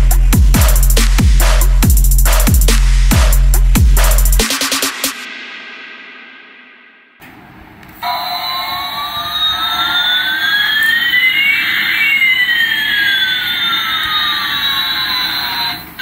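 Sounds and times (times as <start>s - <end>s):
toy jet engine sound effect: 8.0s - 16.0s.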